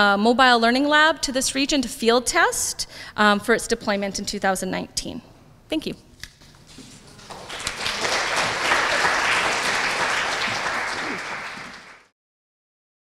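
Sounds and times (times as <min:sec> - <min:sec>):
audience applauding: 0:07.1 - 0:12.1.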